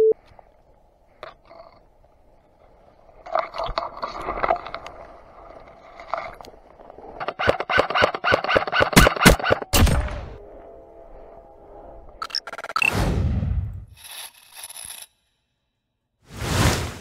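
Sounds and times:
airsoft rifle rapid shots: 7.4 - 9.6.

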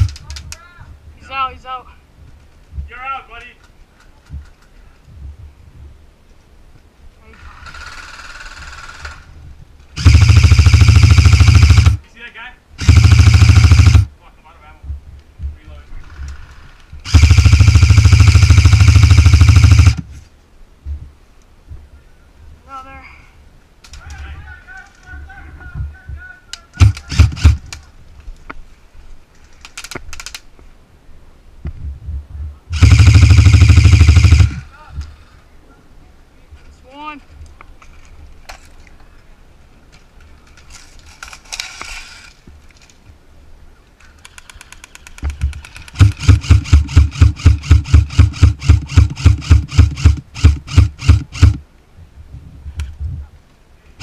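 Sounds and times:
airsoft rifle full-auto burst: 10.0 - 12.0, 12.8 - 14.1, 17.0 - 20.0, 26.8 - 27.7, 32.7 - 34.6, 45.6 - 51.6
airsoft rifle sharp shots: 10.0 - 12.0, 12.8 - 14.1, 17.0 - 20.0, 26.8 - 27.7, 32.8 - 34.6, 45.6 - 51.6.

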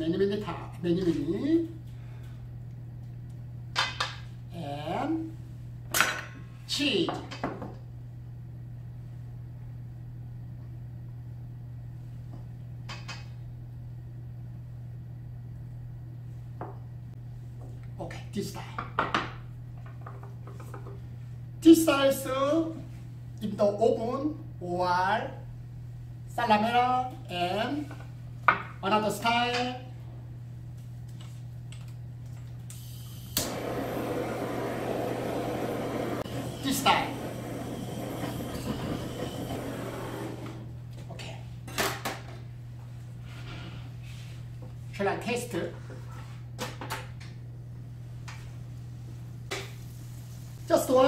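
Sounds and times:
extractor hood fan hum: 0.0 - 51.0
blowtorch igniter click: 32.7 - 40.0
blowtorch flame hissing: 32.7 - 40.8, 49.5 - 50.7.

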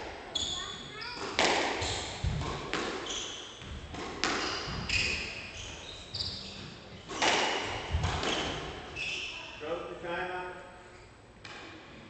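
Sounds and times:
squash ball smacking rackets and walls: 0.0 - 9.2, 11.4 - 11.8
shoes squeaking on wooden floor: 3.0 - 7.1.

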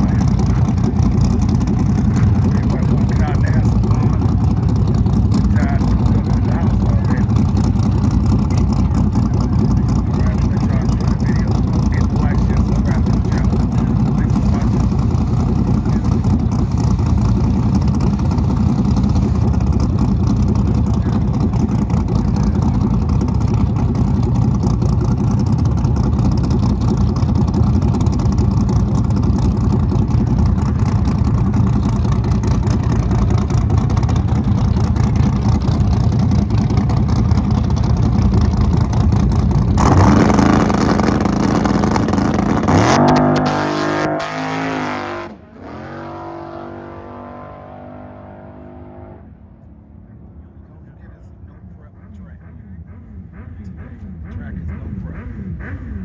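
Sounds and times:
race car engines rumbling: 0.0 - 56.0
engine revving up: 39.6 - 49.3, 51.8 - 56.0.

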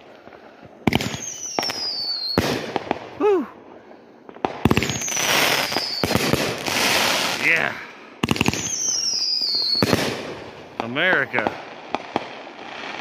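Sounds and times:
fireworks bangs and bursts: 0.0 - 3.5, 4.2 - 13.0
fireworks crackling: 0.0 - 13.0
falling firework whistle: 0.9 - 3.6, 4.6 - 7.5, 8.3 - 10.1.

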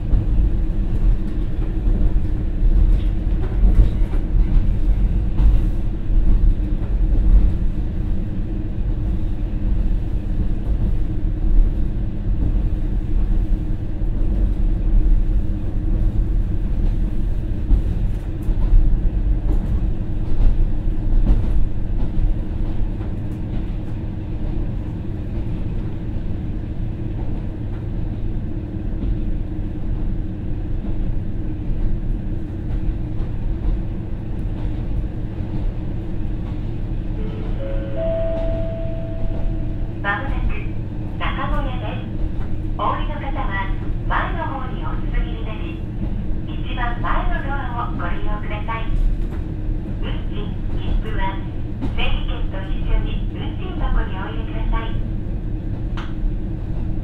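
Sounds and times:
diesel railcar engine droning: 0.0 - 57.0
train wheels rumbling: 0.0 - 57.0.

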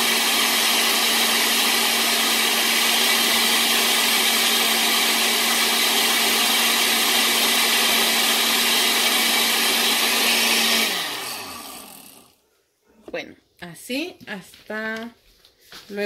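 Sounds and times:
blender motor running: 0.0 - 12.4
blender motor winding down: 0.0 - 12.4.

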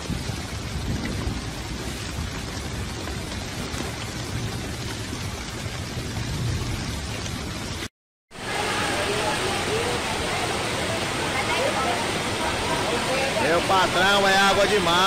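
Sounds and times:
hail and rain pelting down: 0.0 - 15.0.

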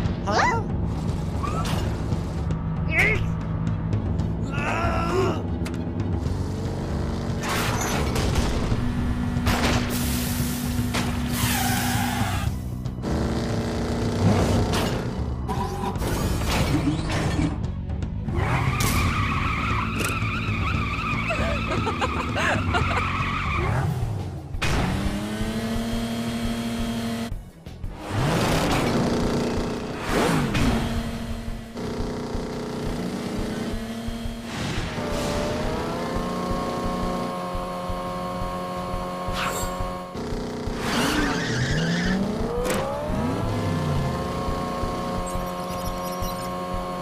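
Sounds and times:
background music: 0.0 - 47.0
cartoon tyres screeching: 1.3 - 2.0, 11.2 - 14.6, 18.2 - 24.2, 34.6 - 47.0
engine running low: 23.9 - 41.3, 42.1 - 47.0.

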